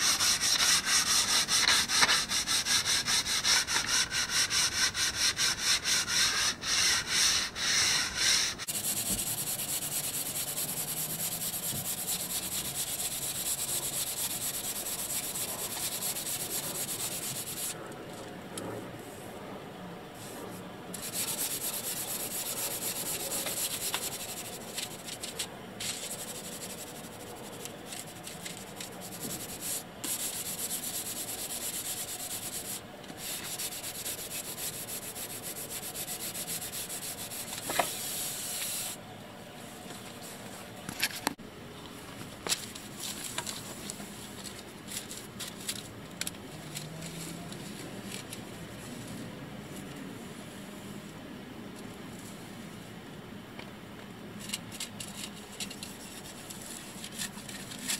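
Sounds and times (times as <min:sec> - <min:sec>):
sandpaper rubbing painted surface: 0:00.0 - 0:17.8, 0:20.2 - 0:39.0.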